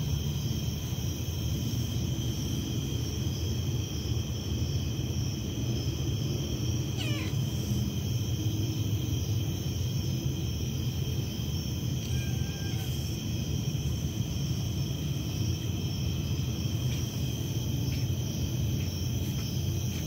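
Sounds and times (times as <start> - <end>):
night insects chirping: 0.0 - 20.0
cat meowing: 6.9 - 7.8, 12.0 - 13.2.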